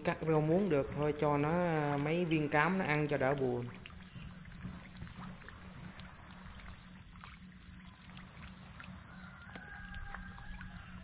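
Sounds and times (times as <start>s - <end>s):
steady high whine: 0.0s - 11.0s
fish splashing at water surface: 2.4s - 11.0s.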